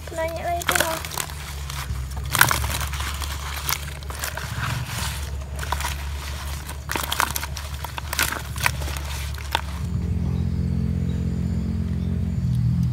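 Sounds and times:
leaves crackling over fish: 0.0 - 10.0
steady low rumble: 0.0 - 12.9.

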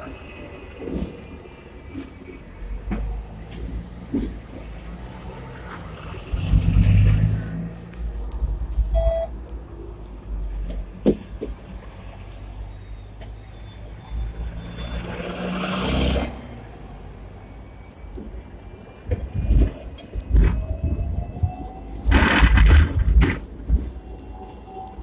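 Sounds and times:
heavy vehicles passing: 0.0 - 25.0
low traffic rumble: 0.0 - 25.0
short electronic beep: 8.9 - 9.3.

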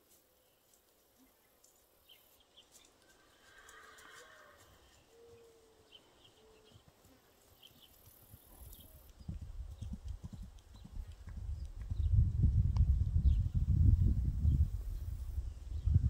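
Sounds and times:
hoofbeats trotting on dry ground: 0.0 - 12.7.

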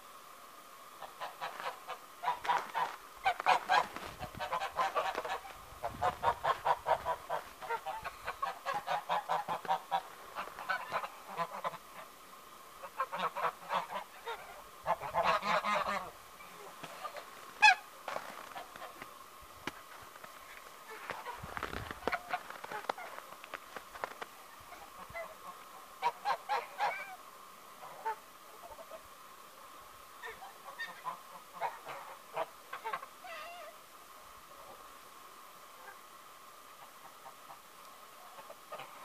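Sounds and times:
geese honking: 1.0 - 12.2, 12.8 - 19.1, 19.9 - 27.2.

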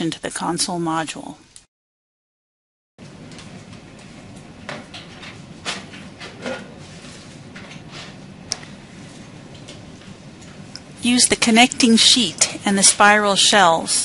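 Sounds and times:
steady low hum: 3.0 - 14.0.

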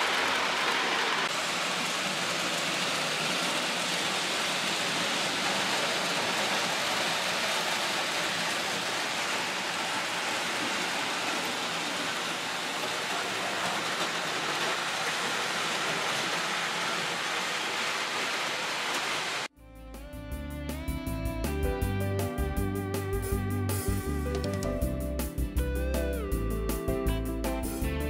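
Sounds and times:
guitar music: 19.6 - 28.0.

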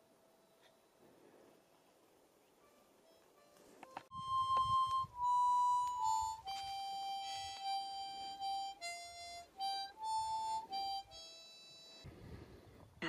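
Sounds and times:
slow melody of high notes: 3.0 - 12.0.

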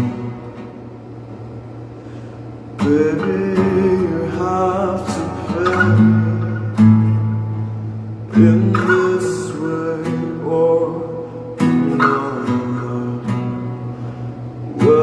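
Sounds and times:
acoustic guitar strumming: 0.0 - 15.0
person singing: 2.8 - 7.0, 8.3 - 13.5.

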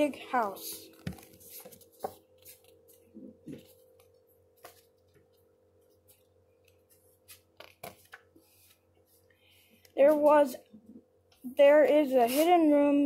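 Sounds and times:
faint steady hum: 0.0 - 13.0
book pages rustling: 0.4 - 9.2.

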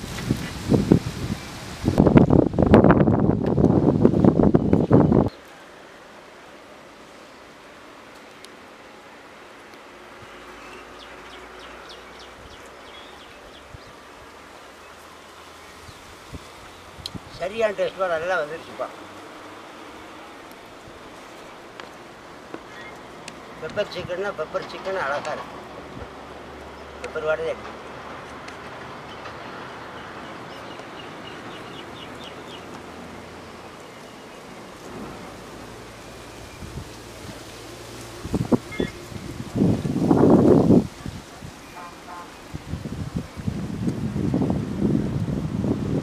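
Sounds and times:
background hiss: 0.0 - 46.0
small bird chirping: 38.7 - 39.3.

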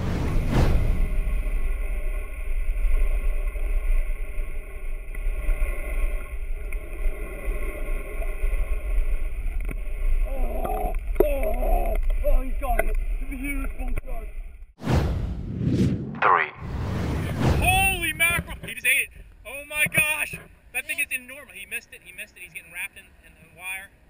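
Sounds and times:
muffled underwater rumble: 0.0 - 14.7.

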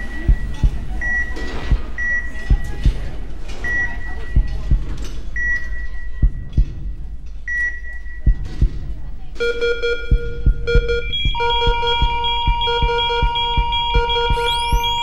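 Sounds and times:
heartbeat thumps: 0.0 - 15.0
high electronic beep: 9.4 - 15.0.

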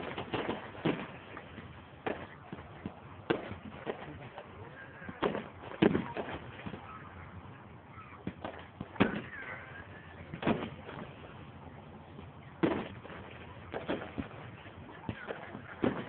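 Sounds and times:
faint fireworks pops: 0.0 - 16.0
fireworks bangs: 0.0 - 16.0.

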